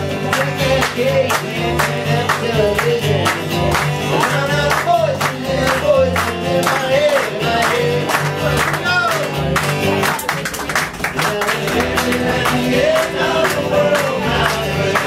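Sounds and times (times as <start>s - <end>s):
acoustic guitar strumming: 0.0s - 15.0s
person singing: 0.0s - 15.0s.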